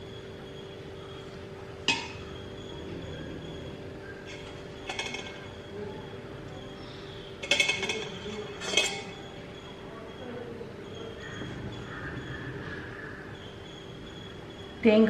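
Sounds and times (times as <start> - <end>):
faint steady hum: 0.0 - 15.0
light metallic clinks: 4.2 - 5.6, 7.4 - 9.4.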